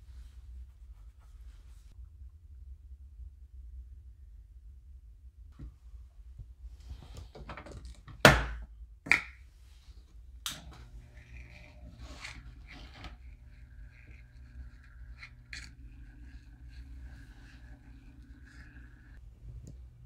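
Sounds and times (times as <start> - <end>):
small electric motor humming: 10.5 - 19.2.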